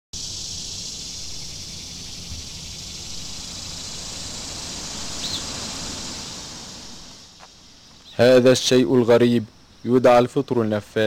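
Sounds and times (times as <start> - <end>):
insects chirring chorus: 0.2 - 11.0
low rumble: 2.0 - 7.5.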